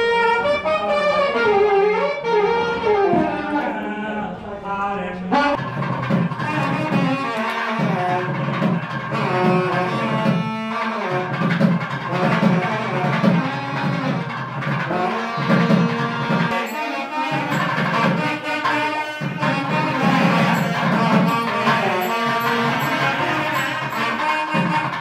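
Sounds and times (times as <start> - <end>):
drums: 5.6 - 25.0.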